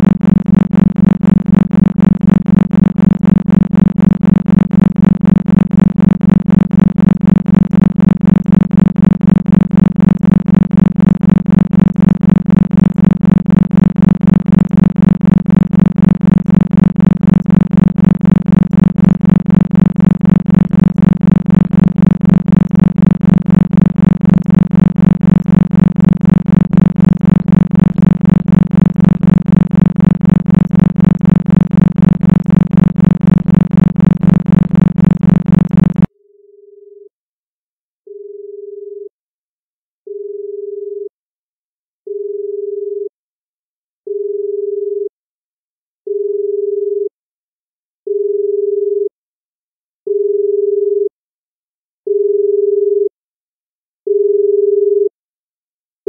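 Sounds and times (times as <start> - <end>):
low buzzy pulsing tone: 0.0 - 36.1.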